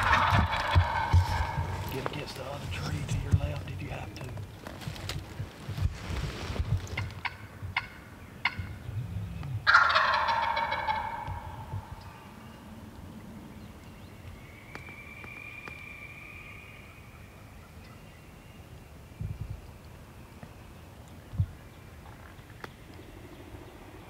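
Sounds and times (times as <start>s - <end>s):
turkey gobbling: 0.0s - 2.3s, 7.0s - 8.7s, 9.6s - 12.2s.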